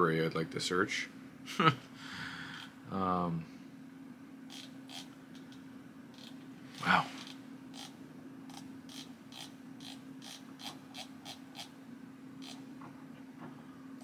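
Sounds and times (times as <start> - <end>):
steady low hum: 0.0 - 14.0
person saying wow: 6.8 - 7.2.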